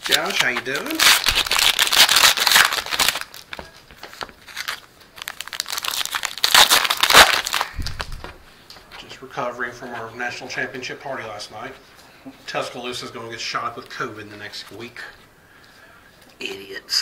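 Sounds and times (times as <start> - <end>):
plastic wrapper crinkling: 0.0 - 8.4.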